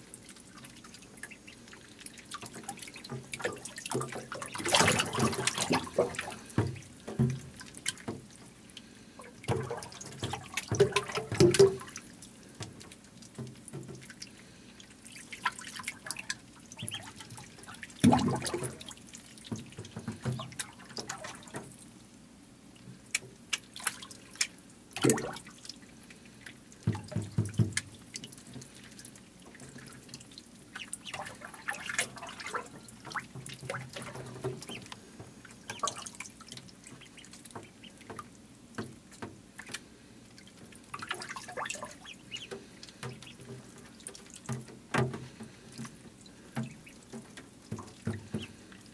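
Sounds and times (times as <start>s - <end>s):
ducklings splashing in water: 0.0s - 48.9s
louder splashes or knocks: 3.1s - 8.2s, 9.5s - 11.9s, 18.0s - 18.9s.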